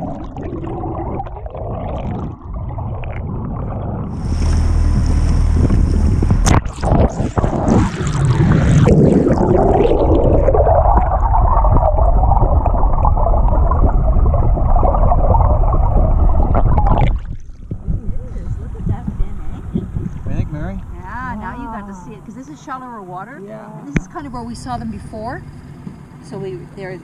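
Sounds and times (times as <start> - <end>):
water rushing and gurgling underwater: 0.0 - 27.0
boat engine drone: 3.6 - 9.0, 17.8 - 27.0
sharp splash: 4.1 - 11.9.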